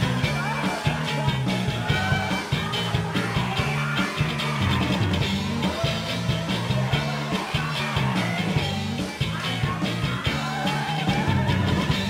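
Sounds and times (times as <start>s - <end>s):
bass line: 0.0s - 12.0s
rock music: 0.0s - 12.0s.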